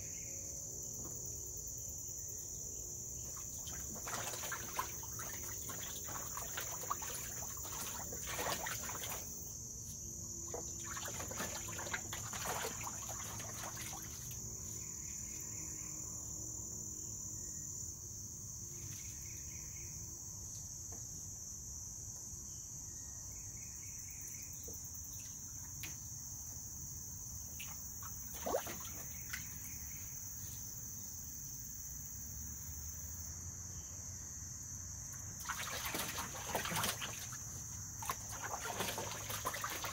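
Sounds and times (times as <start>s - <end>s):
animal splashing in water: 3.3s - 9.5s, 10.5s - 14.5s, 27.6s - 29.7s, 35.4s - 39.9s.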